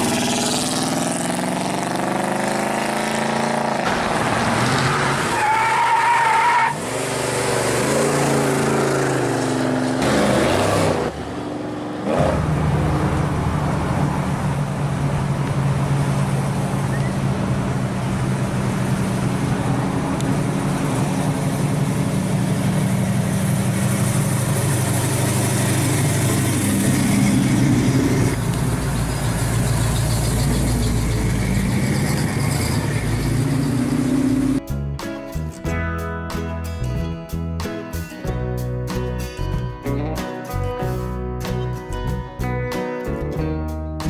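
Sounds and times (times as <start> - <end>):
car engines driving by: 0.0 - 34.6.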